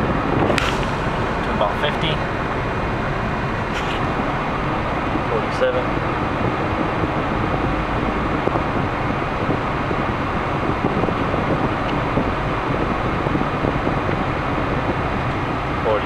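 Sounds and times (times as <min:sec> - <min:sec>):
air conditioning blower: 0:00.0 - 0:16.0
road and engine noise: 0:00.0 - 0:16.0.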